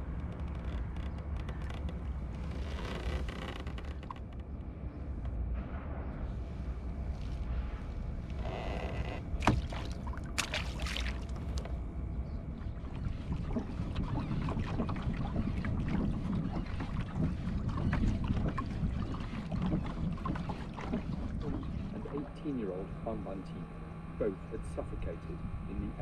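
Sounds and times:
water lapping against hull: 6.2s - 26.0s
short water splashes: 9.4s - 11.8s, 12.6s - 22.4s
wind on microphone: 12.2s - 22.4s.

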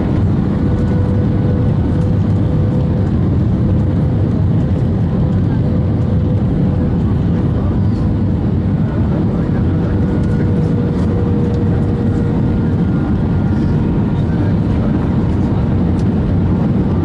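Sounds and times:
aircraft engine and airflow rush: 0.0s - 17.0s.

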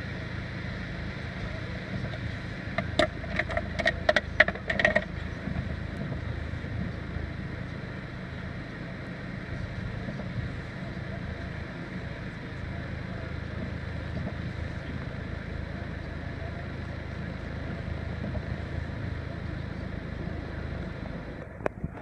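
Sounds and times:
diesel van engine idling: 0.0s - 22.0s.

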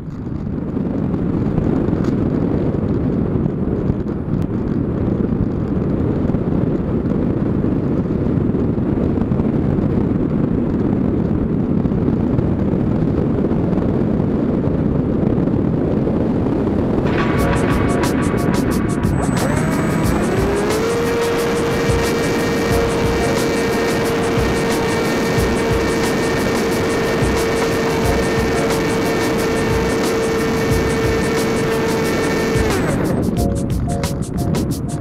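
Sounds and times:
wind rushing over microphone: 0.0s - 35.0s
music: 17.0s - 35.0s.

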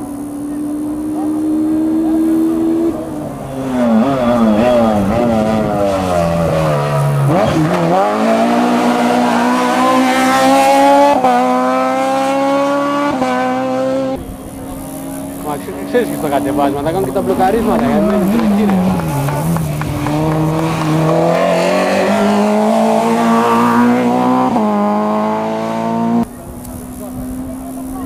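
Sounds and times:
rally car engine revving: 0.0s - 28.0s.

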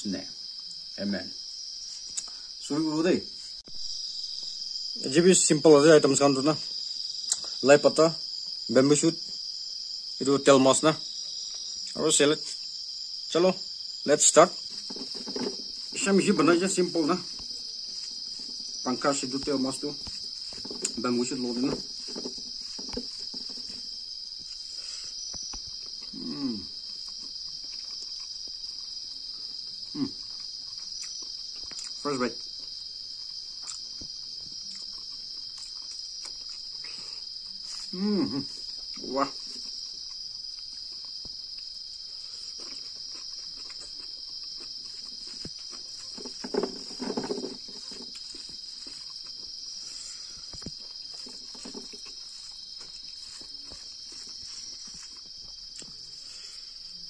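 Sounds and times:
night insects trilling: 0.0s - 57.0s
man humming while eating: 26.1s - 26.8s, 29.9s - 30.2s, 37.9s - 38.7s.

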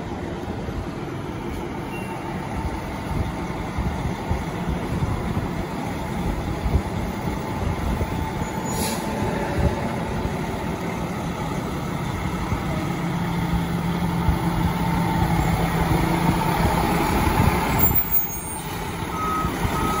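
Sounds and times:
fire engine diesel engine: 0.0s - 20.0s
air brake hiss: 8.6s - 9.4s
reversing beeps: 17.9s - 20.0s.

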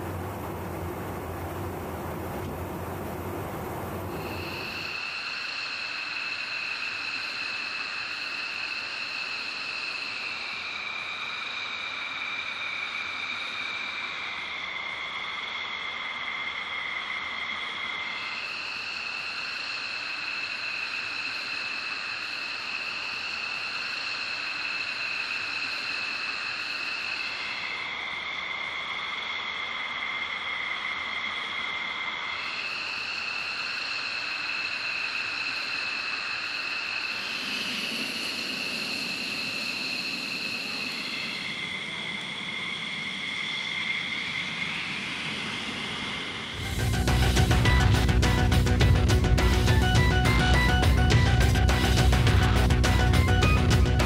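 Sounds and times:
deep rumble: 0.0s - 4.8s, 46.6s - 54.0s
jet turbine whine: 0.0s - 54.0s.

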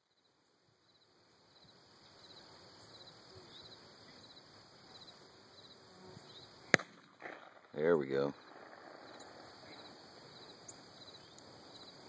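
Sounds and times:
insects chirping: 0.0s - 12.0s
shotgun shot: 6.7s - 9.8s.

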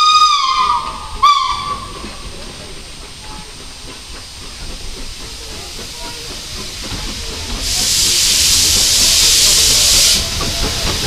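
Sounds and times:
steam locomotive whistle: 0.0s - 2.1s, 7.6s - 11.0s
steam hiss and train noise: 0.0s - 11.0s.

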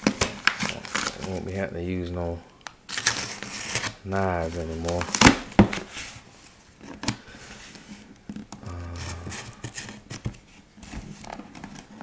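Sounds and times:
cardboard and plastic rustling: 0.0s - 2.2s, 2.9s - 12.0s
murmured voice: 8.6s - 9.6s.

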